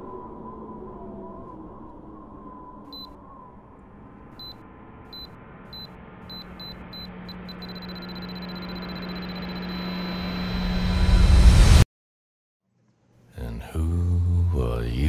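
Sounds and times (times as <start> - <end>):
low drone: 0.0 - 11.8
high-pitched electronic beeps: 2.9 - 3.1, 4.4 - 10.9.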